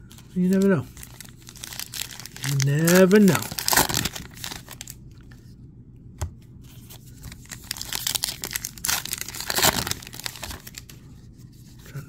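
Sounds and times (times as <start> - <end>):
wrapper crinkling and tearing: 0.1 - 5.0, 6.9 - 10.9.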